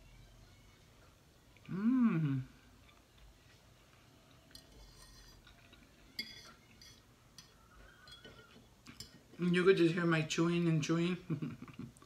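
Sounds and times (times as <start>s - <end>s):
quiet chewing: 2.6s - 6.0s
metal fork clinking on dish: 4.5s - 9.2s.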